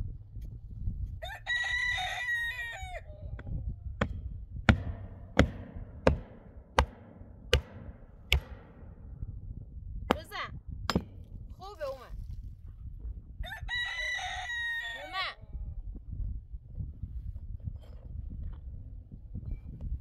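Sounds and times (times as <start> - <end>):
rooster crowing: 1.2 - 3.4, 13.4 - 15.4
hammer blows on metal: 3.4 - 9.3.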